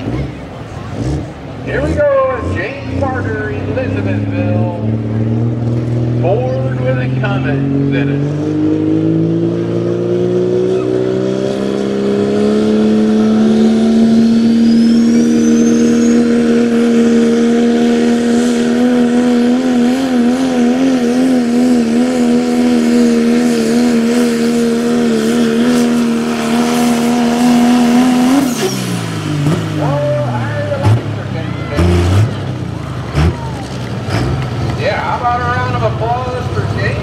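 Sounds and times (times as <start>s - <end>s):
diesel truck engine at full throttle: 0.0s - 37.0s
faint high whistle: 14.5s - 16.3s.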